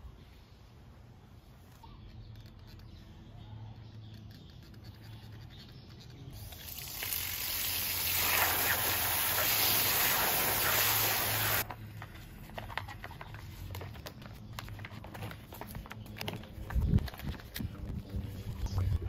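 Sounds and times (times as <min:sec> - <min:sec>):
light clicks and scratches: 0:01.6 - 0:06.4
hose nozzle spraying water: 0:06.4 - 0:11.6.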